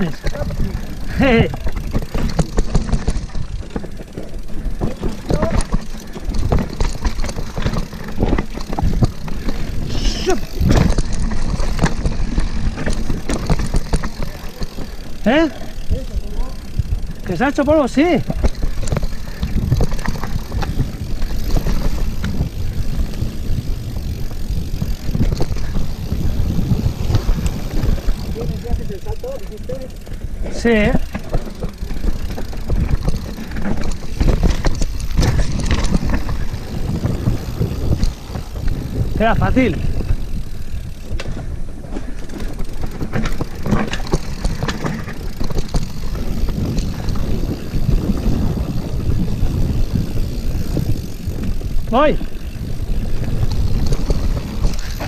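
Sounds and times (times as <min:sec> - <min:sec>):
bike clicks and knocks: 0:00.0 - 0:55.0
tyres rumbling on dirt: 0:00.0 - 0:55.0
wind buffeting microphone: 0:00.0 - 0:55.0
wind on microphone: 0:32.6 - 0:40.6, 0:44.6 - 0:55.0.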